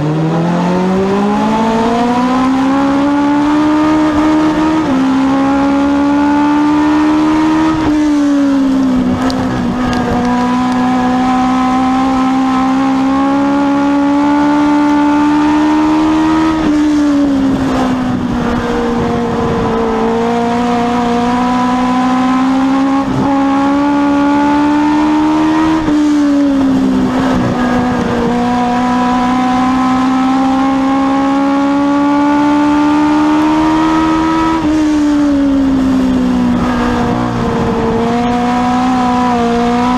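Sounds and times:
race car engine revving: 0:00.0 - 0:39.9.

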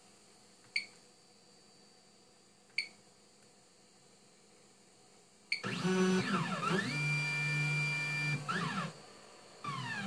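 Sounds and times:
stepper motor whine: 0:05.6 - 0:09.0, 0:09.6 - 0:10.0.

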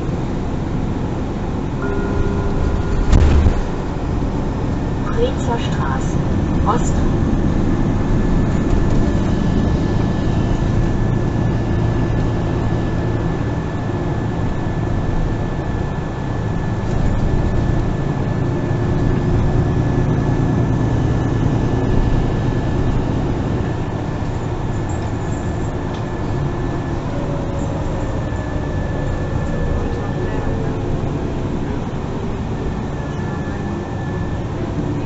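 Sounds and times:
bus engine and drive noise: 0:00.0 - 0:35.0
thin high whine: 0:01.7 - 0:07.0.

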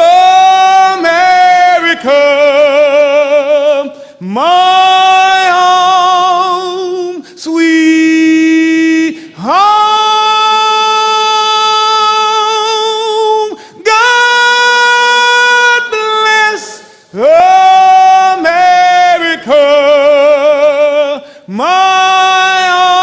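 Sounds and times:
man singing solo: 0:00.0 - 0:23.0
breaths: 0:03.9 - 0:04.2, 0:07.2 - 0:07.4, 0:09.1 - 0:09.4, 0:13.5 - 0:13.8, 0:21.2 - 0:21.5.

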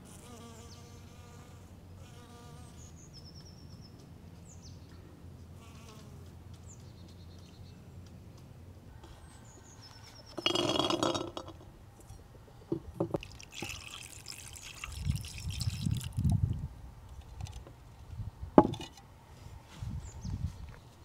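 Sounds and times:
sharp ceramic clink: 0:10.3 - 0:12.2
water pouring into a bowl: 0:13.2 - 0:16.3
water dripping and splashing: 0:13.2 - 0:16.4.

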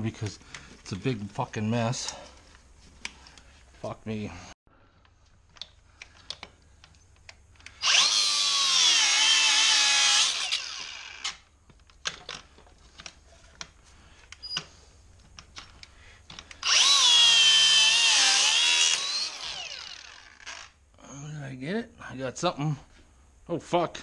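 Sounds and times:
cut-off grinder whining: 0:07.6 - 0:11.5, 0:16.6 - 0:20.7
light clicks and rattles: 0:11.6 - 0:16.6.

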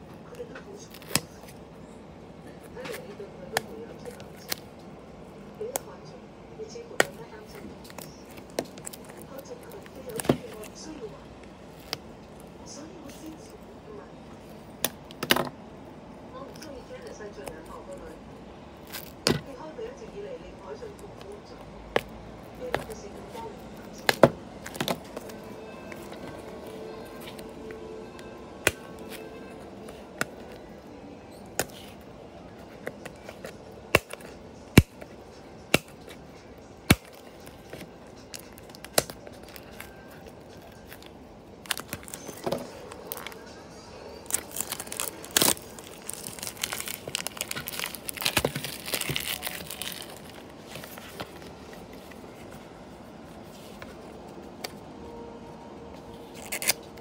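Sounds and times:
plastic crinkling and tearing: 0:36.9 - 0:43.6, 0:44.2 - 0:52.5, 0:56.3 - 0:57.0.

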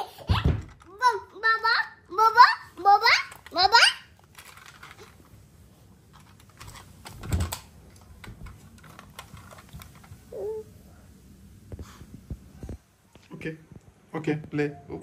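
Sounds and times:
plastic toy car clicking: 0:04.2 - 0:05.1.

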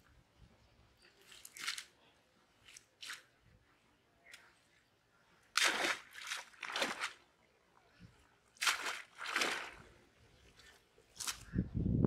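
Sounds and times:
wet net splashing: 0:05.5 - 0:07.2, 0:08.6 - 0:09.9.

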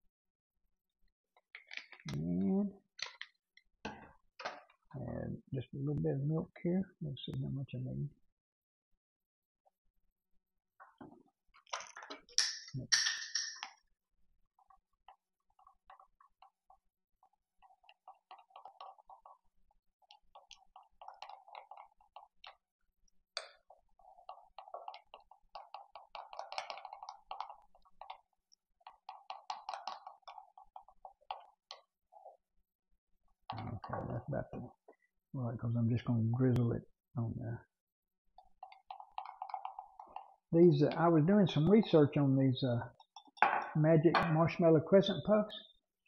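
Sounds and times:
milk pouring: 0:13.6 - 0:32.5, 0:38.4 - 0:42.2.

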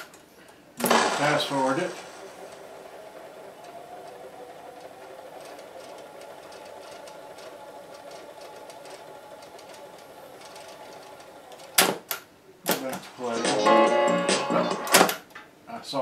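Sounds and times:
tape motor whirring: 0:00.8 - 0:12.3.

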